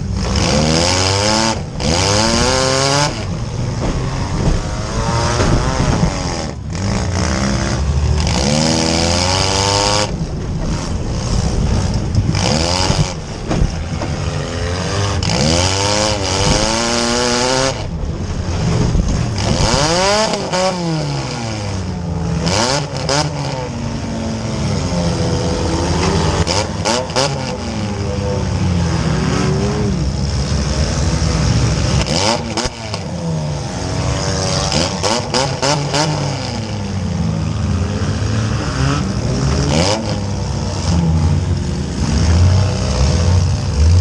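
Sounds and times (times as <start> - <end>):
car engine revving: 0.0 - 44.0
metallic bangs and knocks: 1.6 - 8.4, 9.7 - 20.6.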